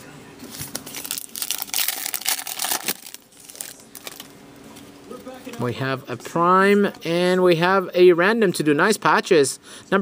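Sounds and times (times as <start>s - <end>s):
plastic wrapper crinkling and tearing: 0.5s - 4.3s.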